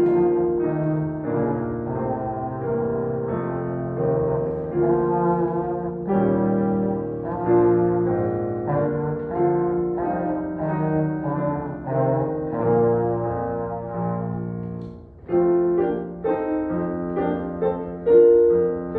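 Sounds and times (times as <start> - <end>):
trombone solo: 0.0 - 14.6
piano chords: 0.0 - 18.9.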